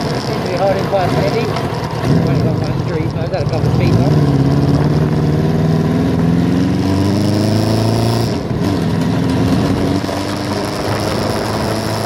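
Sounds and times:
motorcycle engine revving: 0:00.0 - 0:12.0
rider speaking: 0:00.2 - 0:04.6.

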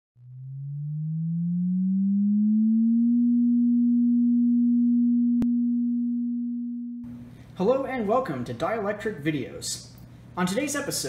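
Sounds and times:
electronic tone rising in pitch: 0:00.2 - 0:07.1.

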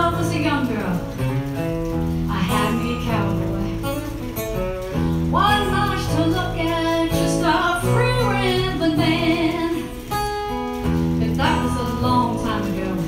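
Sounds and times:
acoustic guitar: 0:00.0 - 0:13.0
woman singing: 0:02.3 - 0:03.9, 0:05.2 - 0:10.4, 0:11.2 - 0:13.0.

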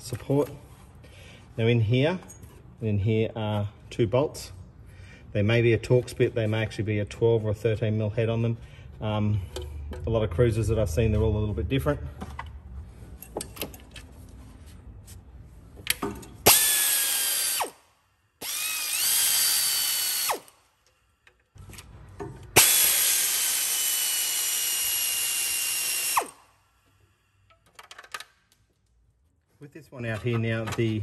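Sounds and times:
pneumatic air ratchet whining: 0:16.4 - 0:17.8, 0:18.4 - 0:20.6, 0:22.5 - 0:26.6.

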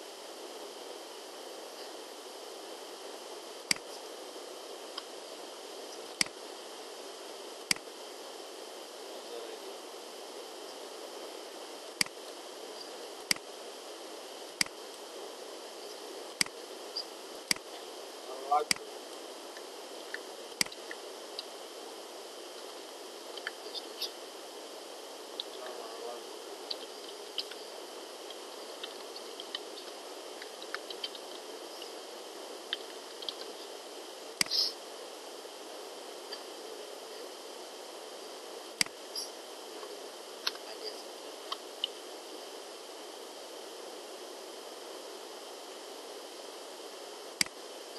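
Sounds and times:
microphone hiss: 0:00.0 - 0:47.9
computer mouse clicks: 0:34.4 - 0:34.7.

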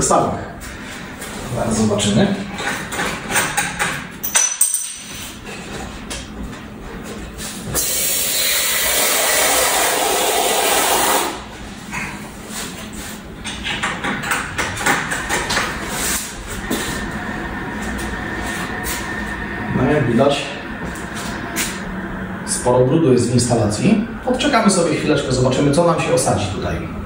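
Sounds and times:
water hissing out under pressure: 0:07.8 - 0:11.4.

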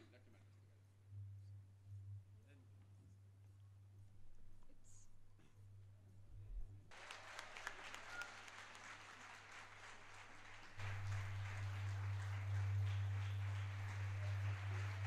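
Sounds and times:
faint audience applause: 0:06.9 - 0:15.0
low hum: 0:10.3 - 0:15.0.

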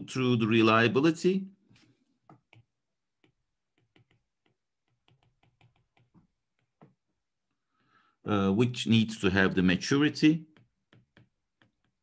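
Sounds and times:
stylus tapping on tablet screen: 0:02.2 - 0:07.3, 0:10.2 - 0:12.0.

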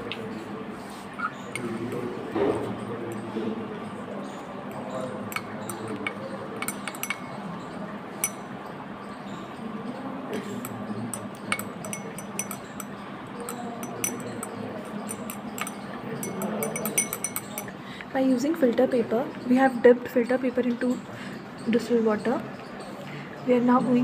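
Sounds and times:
glass rod clinking in beaker: 0:04.9 - 0:07.6, 0:08.2 - 0:08.5, 0:10.6 - 0:17.7.

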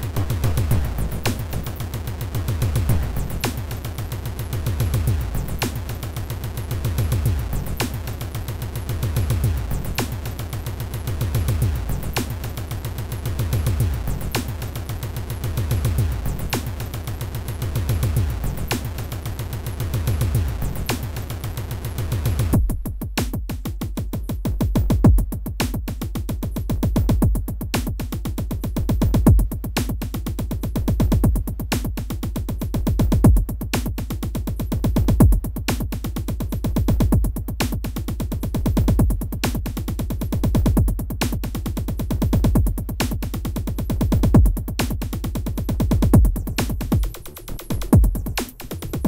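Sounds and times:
electronic music with heavy bass: 0:00.0 - 0:49.0.

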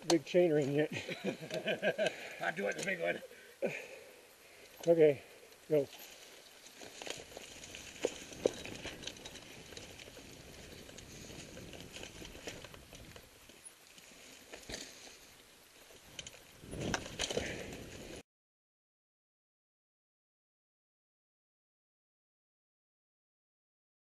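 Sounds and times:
bike tyres rustling on leaves: 0:05.7 - 0:18.2
bike clicks and knocks: 0:05.9 - 0:13.7, 0:15.9 - 0:17.9.

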